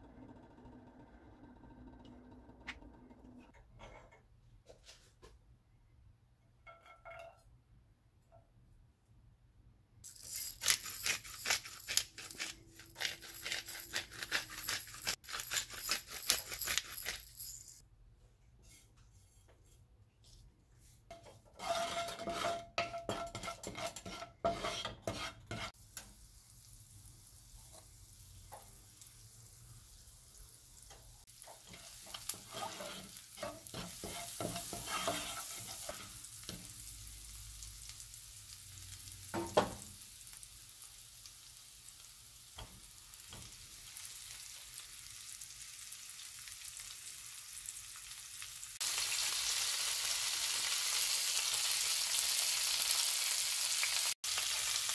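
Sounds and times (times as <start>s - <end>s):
spatula scraping pan: 18.6s - 25.8s, 31.2s - 36.8s
garlic sizzling in oil: 23.1s - 54.9s.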